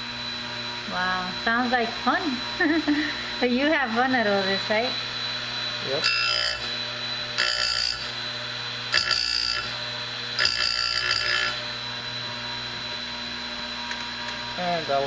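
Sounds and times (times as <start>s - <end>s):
electric motor running: 0.0s - 15.0s
metallic grinding screech: 5.8s - 6.7s, 10.4s - 11.6s.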